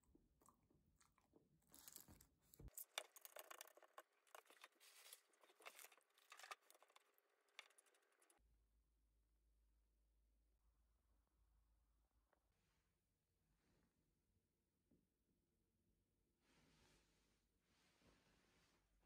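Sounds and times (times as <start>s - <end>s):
plastic cup crinkling and clicking: 1.0s - 8.3s.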